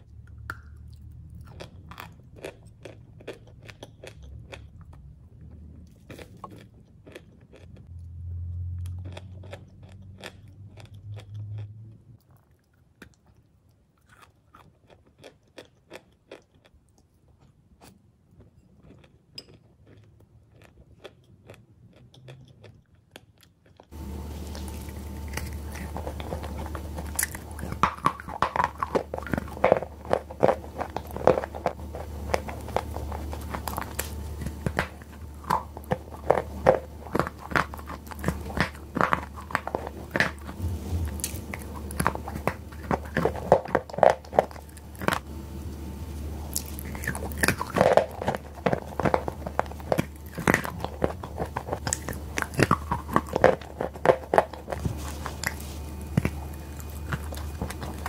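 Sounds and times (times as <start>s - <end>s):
chalk crunching while chewed: 0.0s - 8.0s, 8.8s - 45.3s, 46.1s - 58.0s
steady low hum: 23.9s - 58.0s.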